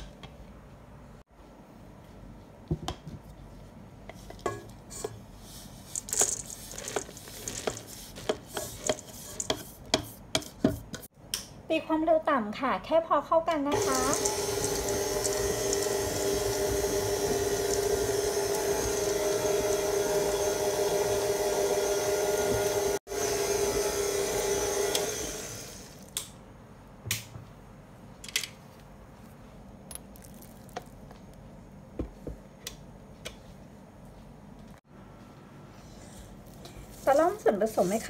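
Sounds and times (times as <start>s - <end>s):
stand mixer motor hum: 13.8s - 25.9s.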